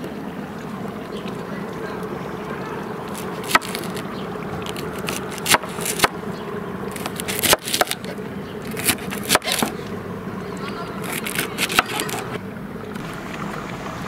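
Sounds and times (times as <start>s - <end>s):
steady low hum: 0.0s - 14.0s
knife chopping on stone countertop: 11.1s - 12.3s.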